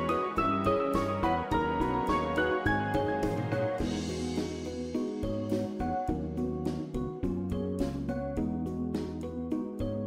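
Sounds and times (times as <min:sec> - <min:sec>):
background music with beat and bass: 0:00.0 - 0:10.0.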